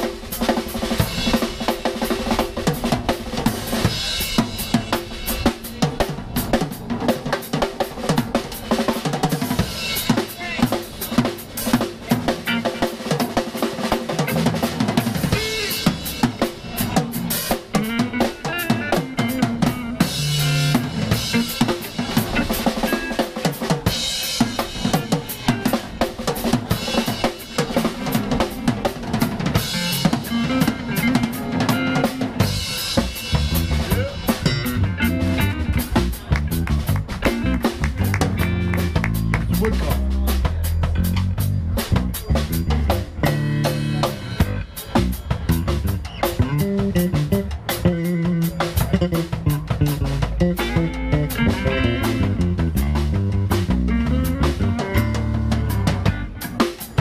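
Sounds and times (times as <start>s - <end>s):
bass drum and snare beat: 0.0s - 57.0s
electric guitar notes: 29.7s - 39.7s, 46.5s - 57.0s.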